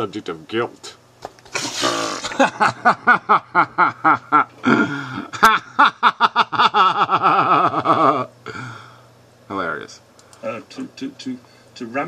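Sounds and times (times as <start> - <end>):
man laughing: 1.6 - 8.3.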